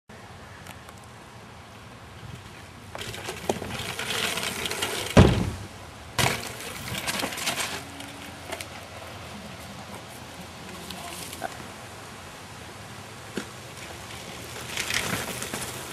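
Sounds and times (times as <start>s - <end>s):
wheels rolling: 0.6s - 15.9s
rider landing impact: 2.9s - 7.8s
wheels thumping against wall: 3.0s - 7.8s.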